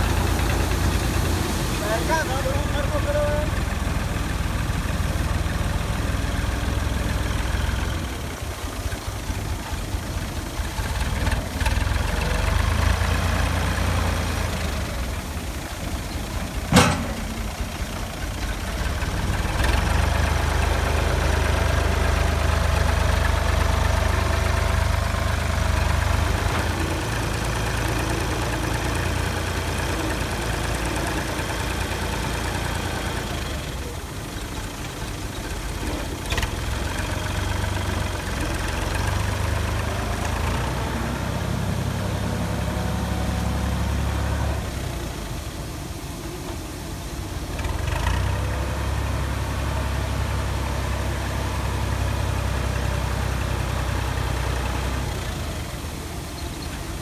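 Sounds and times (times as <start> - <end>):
tractor diesel engine under load: 0.0 - 57.0
sharp knock: 16.7 - 17.5.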